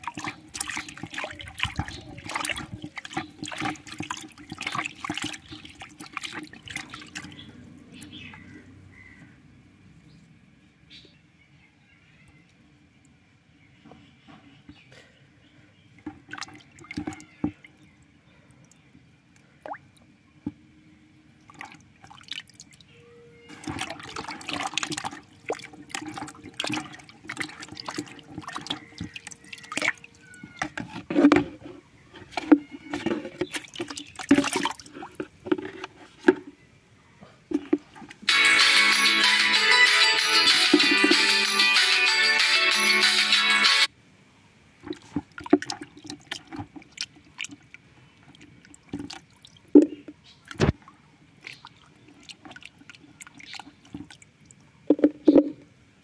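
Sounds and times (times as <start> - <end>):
hand splashing water in tub: 0.0 - 8.5, 16.1 - 17.7, 23.5 - 30.9, 32.3 - 35.7, 44.8 - 54.2.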